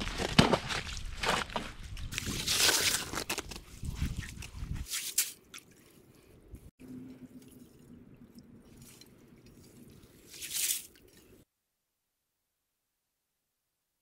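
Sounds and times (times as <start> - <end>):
slush and ice sloshing: 0.0 - 6.0, 8.6 - 11.4.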